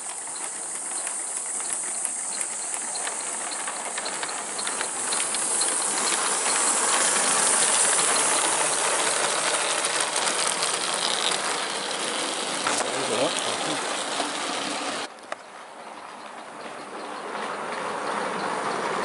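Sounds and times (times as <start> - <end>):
rapid mechanical clicking: 0.0 - 15.1
steam hissing: 0.0 - 15.1.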